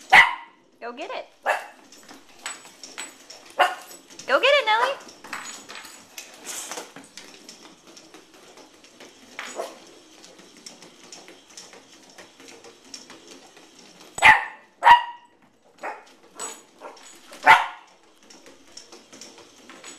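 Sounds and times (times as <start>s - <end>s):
puppy barking: 0.0s - 0.6s, 1.4s - 1.8s, 3.6s - 4.0s, 14.2s - 16.1s, 16.8s - 17.9s.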